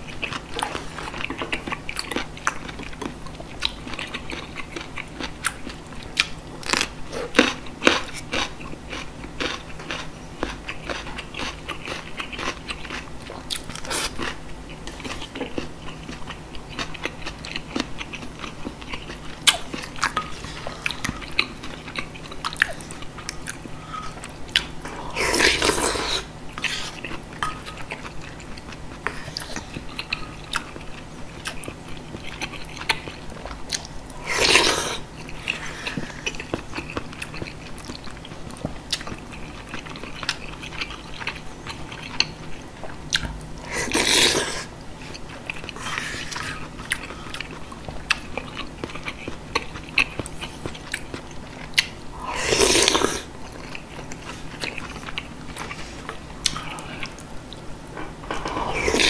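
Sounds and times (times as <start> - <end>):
slurping soup from spoon: 52.2 - 53.3, 58.4 - 59.0.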